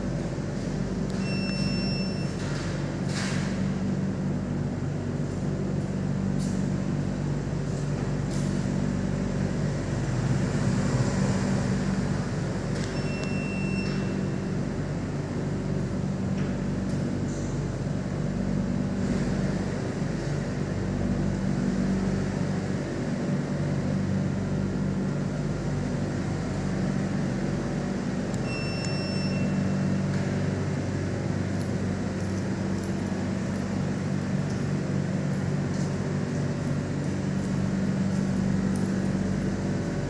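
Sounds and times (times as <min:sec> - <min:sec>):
low mechanical hum: 0:00.0 - 0:40.0
short high electronic beep: 0:01.2 - 0:02.3, 0:28.5 - 0:29.6.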